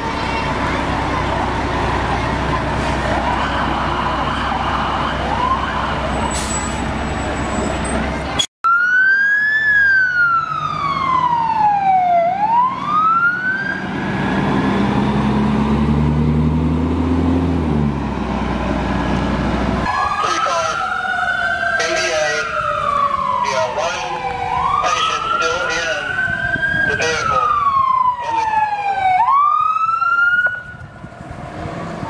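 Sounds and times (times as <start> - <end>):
fire engine running: 0.0 - 32.0
siren falling and rising: 1.3 - 6.4, 8.6 - 14.6, 18.8 - 31.3.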